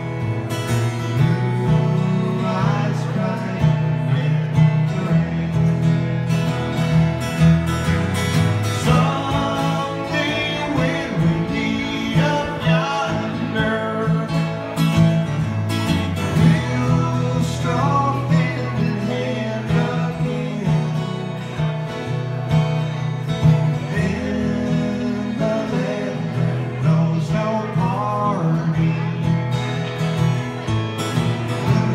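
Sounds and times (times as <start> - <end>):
acoustic guitars strummed and picked: 0.0 - 31.9
man singing: 1.0 - 6.3, 8.6 - 15.3, 16.1 - 21.8, 23.5 - 29.6, 31.4 - 31.9.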